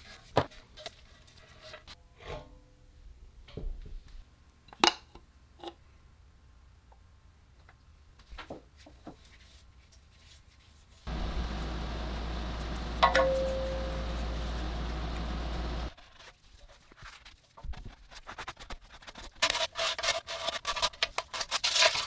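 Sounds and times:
low hum with hiss: 0:11.1 - 0:15.9.

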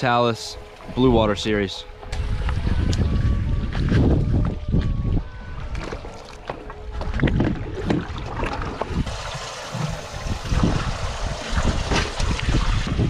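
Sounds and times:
wind buffeting microphone: 0:00.6 - 0:06.1, 0:06.7 - 0:13.0
water lapping against boat hull: 0:02.0 - 0:13.0.

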